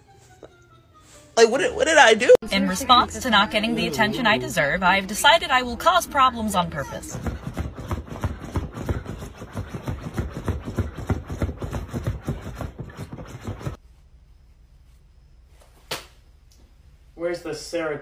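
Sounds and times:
dog scratching at cushions: 0:07.3 - 0:13.8.

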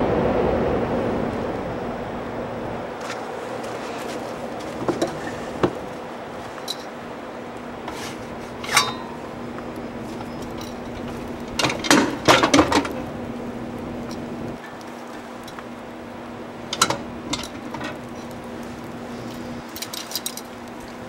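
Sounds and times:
low hum: 0:00.0 - 0:21.0
metal grill clanking and rattling: 0:07.8 - 0:09.4, 0:10.0 - 0:13.1, 0:16.7 - 0:18.4, 0:19.2 - 0:20.6.

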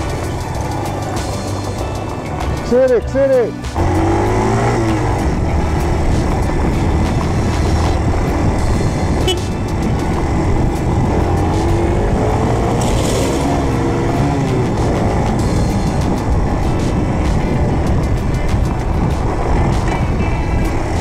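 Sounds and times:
motorcycle engine running: 0:00.0 - 0:21.0
wind rumble on microphone: 0:04.4 - 0:21.0.

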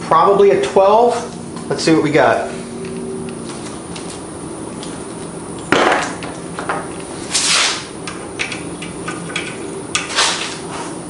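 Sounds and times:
metal sockets clinking: 0:08.1 - 0:10.1.

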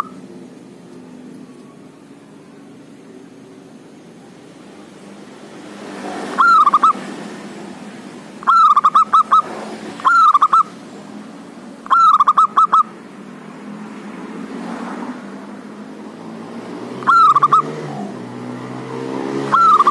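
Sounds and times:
dove cooing: 0:00.0 - 0:00.3, 0:06.2 - 0:07.0, 0:08.4 - 0:10.8, 0:11.8 - 0:13.0, 0:17.0 - 0:18.2, 0:19.5 - 0:19.9.

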